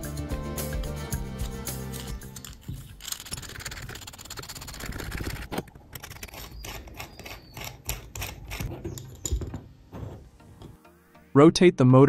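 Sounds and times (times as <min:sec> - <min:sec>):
fine rapid clicks: 0:02.0 - 0:08.0.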